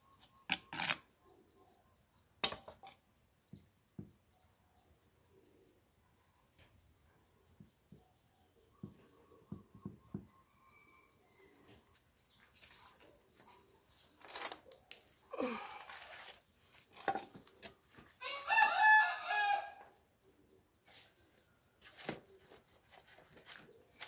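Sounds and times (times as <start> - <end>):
hands rustling in potting soil: 11.4 - 18.2, 20.8 - 24.0
rooster crowing: 18.2 - 19.9.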